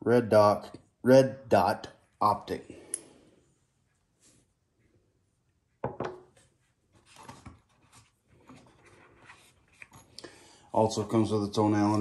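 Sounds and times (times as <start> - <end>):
knock on wooden table: 5.8 - 6.2.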